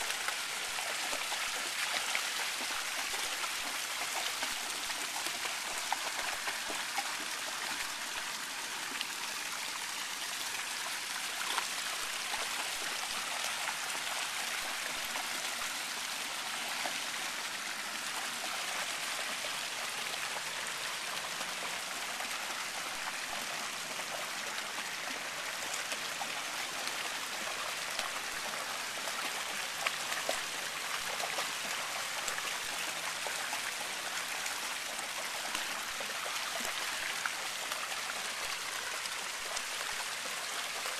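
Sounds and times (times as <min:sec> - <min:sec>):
fountain jets pouring into pool: 0:00.0 - 0:40.9
dog wading through water: 0:00.1 - 0:09.2.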